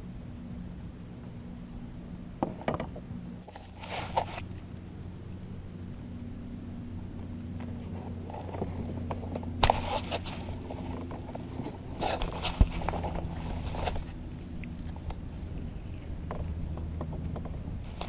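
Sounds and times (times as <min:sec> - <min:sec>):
gear knocking in a kayak: 0:16.2 - 0:18.0.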